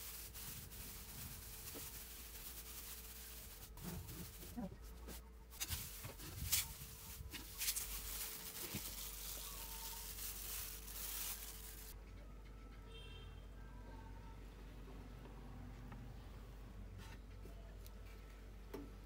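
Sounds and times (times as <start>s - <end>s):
crackers crumbling: 0.0s - 12.0s
crackles and rustles: 0.0s - 12.0s.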